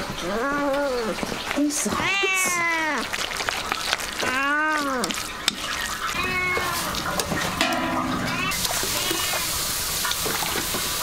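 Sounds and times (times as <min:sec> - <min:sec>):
cat meowing: 0:01.9 - 0:03.1, 0:04.2 - 0:05.2, 0:06.0 - 0:09.6.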